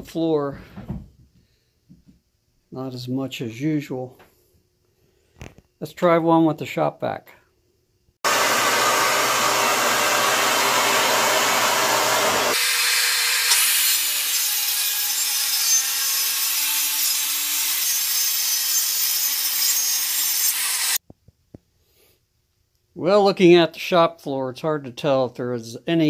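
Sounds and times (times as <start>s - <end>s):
shop vacuum running: 8.2s - 14.3s
circular saw cutting plywood: 8.3s - 21.0s.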